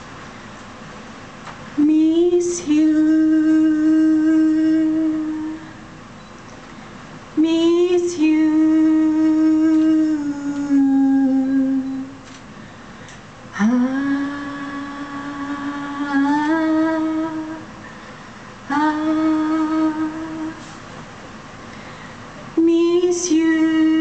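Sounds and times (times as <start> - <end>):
woman singing long held notes: 1.8 - 5.9, 7.4 - 12.2, 13.5 - 17.9, 18.6 - 20.8, 22.6 - 24.0.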